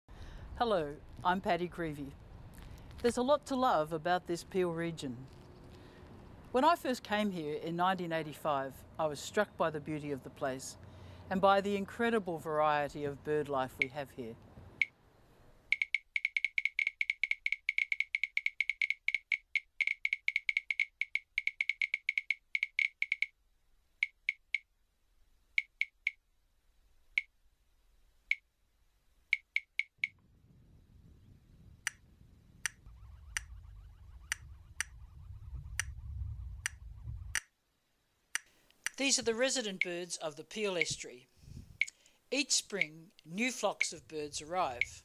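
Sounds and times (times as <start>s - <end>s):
sharp high clicking calls: 15.7s - 23.4s, 24.0s - 24.7s, 25.6s - 26.2s, 29.3s - 30.2s, 32.6s - 36.0s, 36.6s - 37.5s, 38.3s - 40.2s, 40.8s - 41.0s, 41.8s - 44.1s, 44.7s - 45.0s
wind and choppy water rumble: 30.2s - 37.4s.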